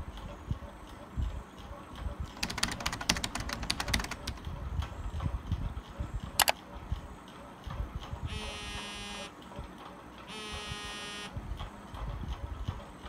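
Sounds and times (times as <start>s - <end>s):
sharp click: 6.4s - 6.6s.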